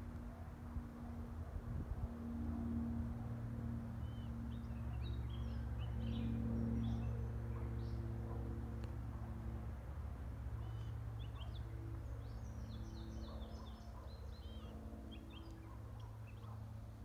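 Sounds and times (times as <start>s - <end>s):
distant turboprops droning: 0.0s - 17.0s
small bird chirping: 10.6s - 16.6s.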